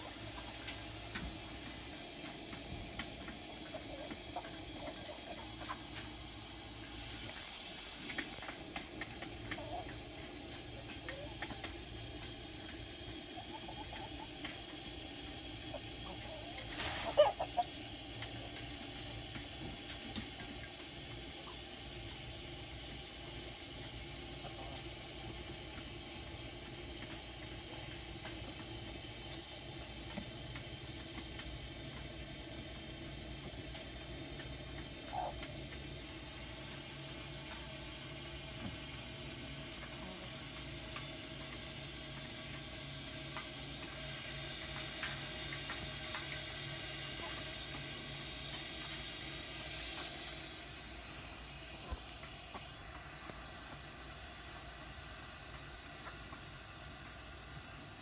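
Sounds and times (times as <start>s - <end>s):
chickens clucking: 0.0s - 21.8s, 33.4s - 36.0s, 43.3s - 50.5s, 51.4s - 56.5s
steady background hiss: 0.0s - 58.0s.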